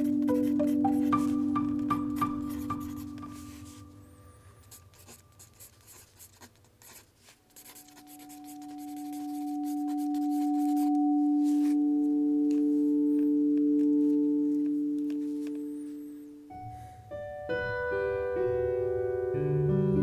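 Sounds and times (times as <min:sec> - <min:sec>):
pencil scratching on paper: 0:04.6 - 0:11.8.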